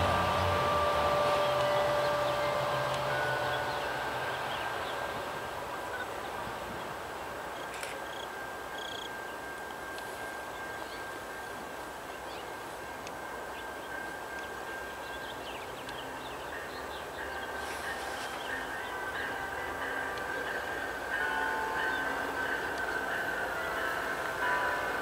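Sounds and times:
steady high tone: 0:00.0 - 0:06.7
diesel train rumble: 0:00.0 - 0:25.0.

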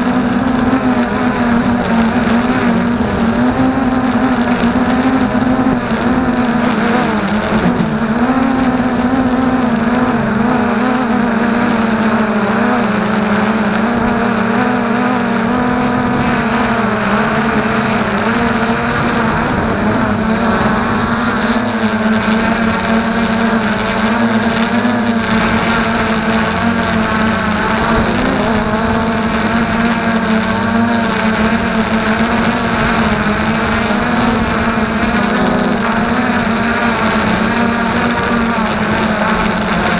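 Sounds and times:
quadcopter propellers whining: 0:00.0 - 0:39.9.

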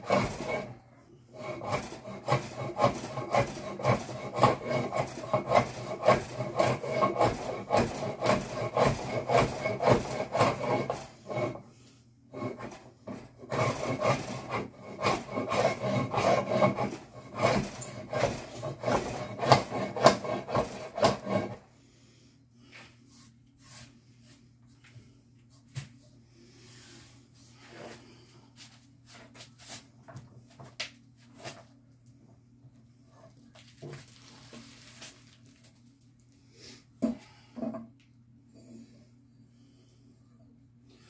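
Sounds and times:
hand plane shaving wood: 0:00.0 - 0:21.6.

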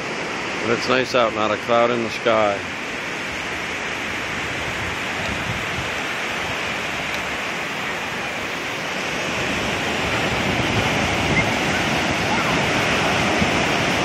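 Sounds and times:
ocean surf on sandy beach: 0:00.0 - 0:14.0.

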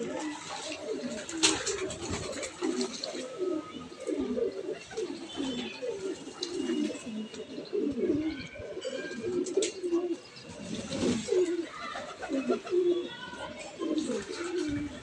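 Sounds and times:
water splashes and wing flaps: 0:00.0 - 0:03.3
pigeons cooing: 0:00.0 - 0:15.0.

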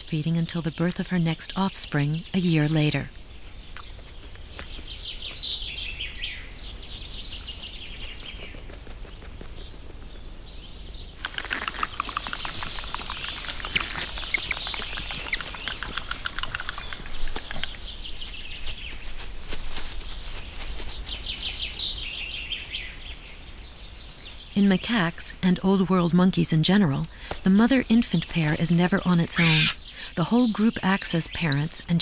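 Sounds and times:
small birds chirping: 0:00.0 - 0:32.0
rapid chirps and clicks: 0:11.2 - 0:18.2, 0:27.7 - 0:29.8.

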